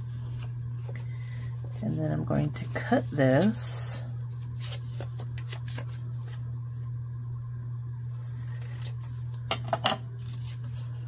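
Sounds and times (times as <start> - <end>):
low hum: 0.0 - 11.0
scissors snipping paper: 8.0 - 9.4.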